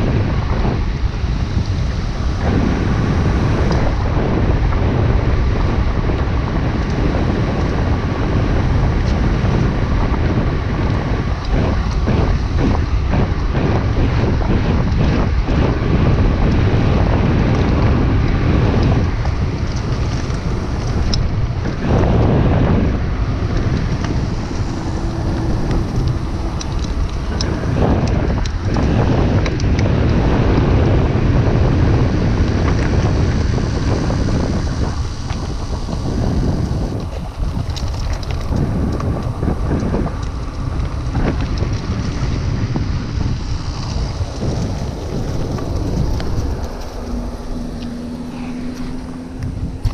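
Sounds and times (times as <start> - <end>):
bike clicks and rattles: 0.0 - 49.9
bike tyres rolling on gravel: 0.0 - 49.9
wind buffeting microphone: 0.0 - 49.9
low steady hum: 17.6 - 49.9.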